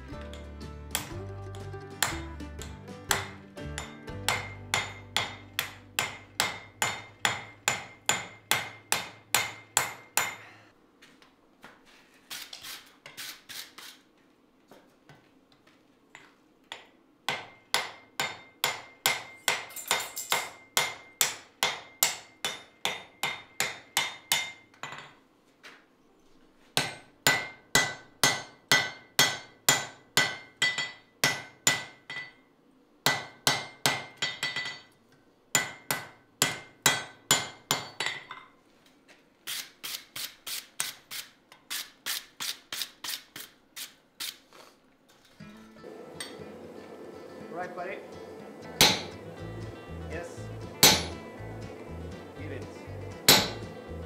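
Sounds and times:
hammer striking steel on anvil: 0:00.1 - 0:10.6, 0:16.7 - 0:25.1, 0:26.8 - 0:32.4, 0:33.0 - 0:38.5, 0:48.7 - 0:49.3, 0:50.6 - 0:51.4, 0:53.2 - 0:53.8.

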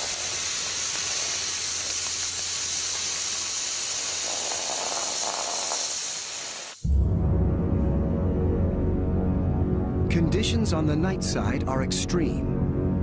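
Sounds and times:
water hissing on hot lava: 0:00.0 - 0:06.9
low ominous music drone: 0:06.8 - 0:13.0.

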